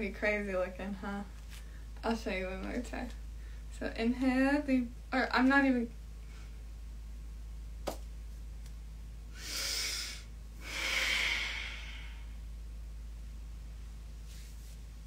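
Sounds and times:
person breathing in and out: 9.3 - 12.4.

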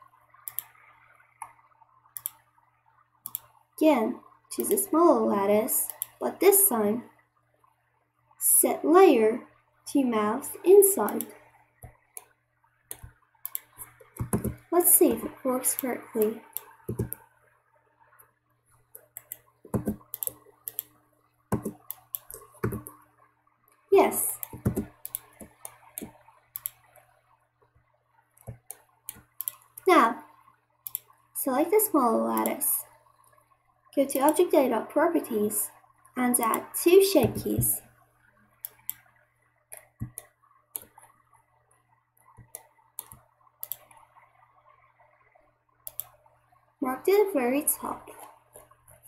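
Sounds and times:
faint steady hum: 0.0 - 49.0
keyboard and mouse clicking: 0.4 - 0.8, 2.2 - 2.4, 3.2 - 3.6, 4.6 - 4.9, 5.8 - 6.2, 11.1 - 12.3, 12.9 - 17.2, 18.9 - 20.9, 21.5 - 23.0, 24.3 - 27.0, 28.4 - 29.9, 30.9 - 31.1, 34.2 - 34.4, 39.7 - 41.1, 42.3 - 44.0, 45.8 - 46.2.

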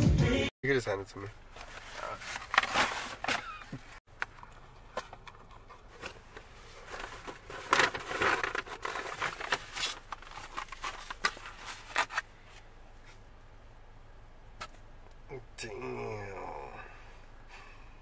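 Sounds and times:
paper bag and cardboard rustling: 1.5 - 4.0, 5.8 - 12.2.

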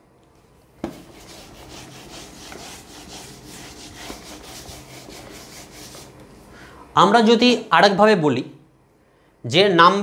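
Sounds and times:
eraser wiping whiteboard: 0.8 - 6.2.

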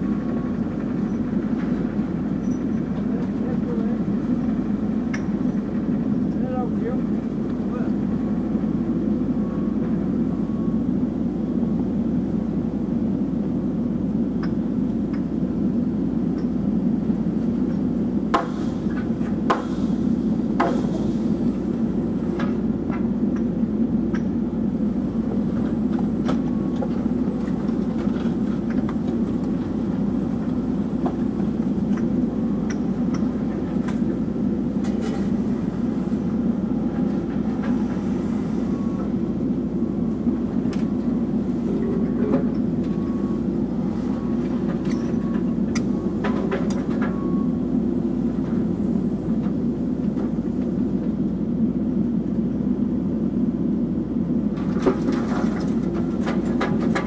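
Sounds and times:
excavator engine and hydraulics: 0.0 - 57.0.

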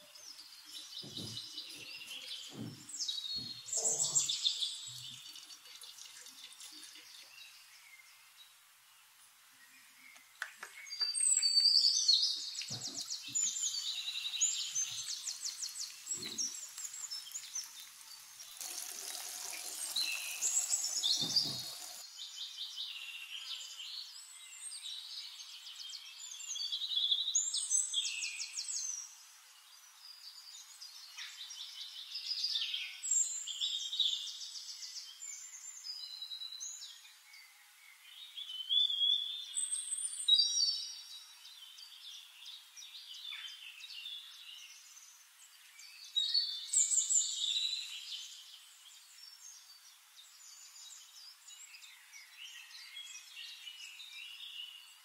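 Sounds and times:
songbirds chirping and trilling: 0.0 - 55.0
steady hiss: 12.3 - 22.1.

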